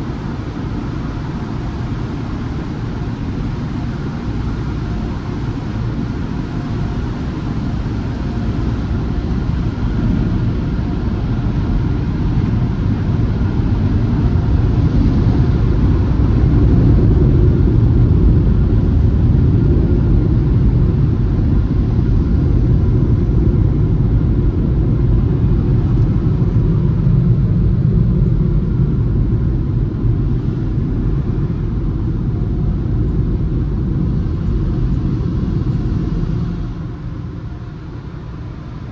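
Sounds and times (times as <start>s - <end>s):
car wash water spray and blowers: 0.0s - 38.9s.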